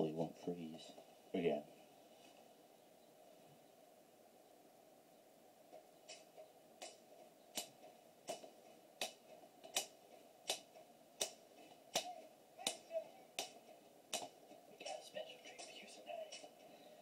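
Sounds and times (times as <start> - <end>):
hands snapping a steady beat: 5.7 - 16.7.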